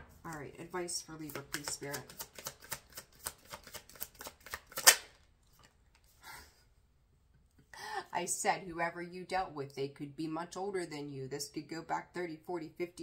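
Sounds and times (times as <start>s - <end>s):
soft card rustle: 0.0s - 6.2s
cards being shuffled: 1.1s - 6.2s
card snap: 1.3s - 5.2s.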